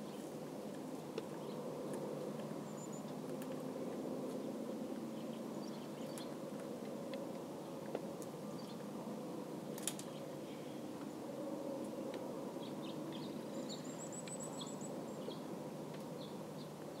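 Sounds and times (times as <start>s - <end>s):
songbird chirping: 0.9s - 3.6s, 4.3s - 6.4s, 8.4s - 8.9s, 12.6s - 17.0s.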